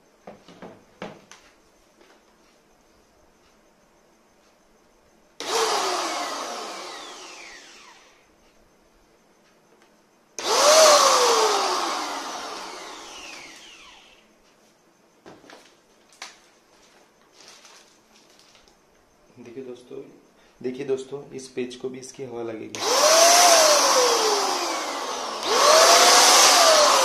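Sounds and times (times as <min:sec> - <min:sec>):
paint sprayer motor whine: 0:05.4 - 0:08.2, 0:10.4 - 0:14.3, 0:22.7 - 0:27.0.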